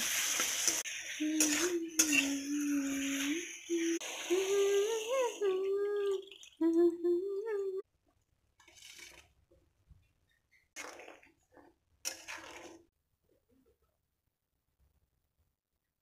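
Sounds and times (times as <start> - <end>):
water hissing in hot wok: 0.0 - 5.5
person humming: 1.2 - 7.8.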